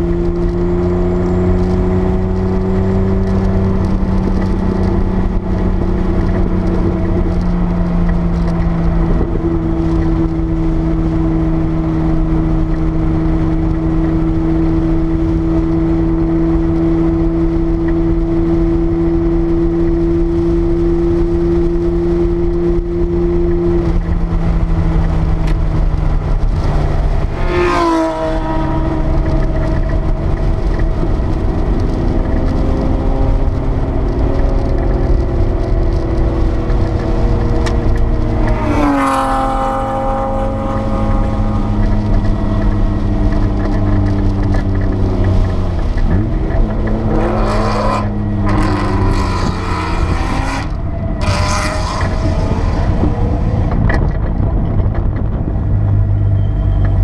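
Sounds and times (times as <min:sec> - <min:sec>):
car engine under load: 0:00.0 - 0:57.0.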